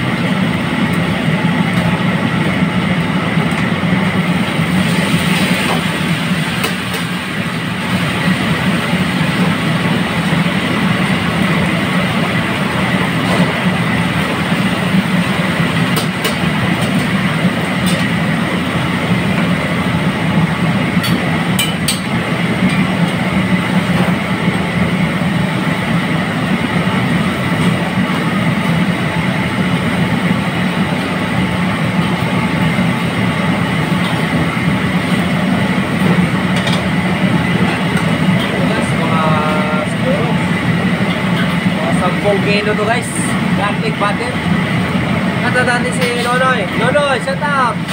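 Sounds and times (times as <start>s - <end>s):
gas burner rumbling: 0.0s - 47.9s
food sizzling in oil: 4.1s - 31.4s.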